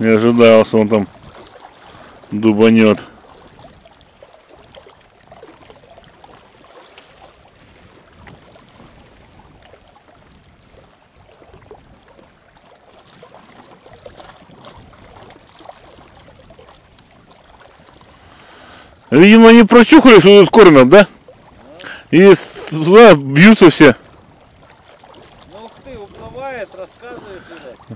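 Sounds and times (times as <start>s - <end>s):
small waves lapping against rocks: 0.0s - 27.9s.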